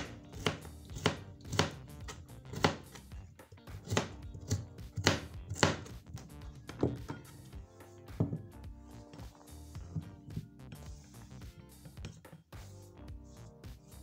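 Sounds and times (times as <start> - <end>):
knife chopping on cutting board: 0.0 - 7.3, 8.1 - 10.9, 12.0 - 12.4.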